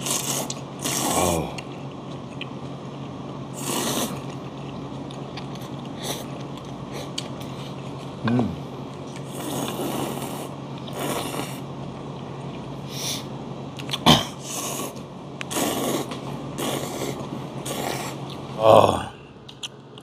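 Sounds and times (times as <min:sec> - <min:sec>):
people slurping noodles: 0:00.0 - 0:01.7, 0:03.6 - 0:04.3, 0:09.2 - 0:11.6, 0:13.9 - 0:19.1.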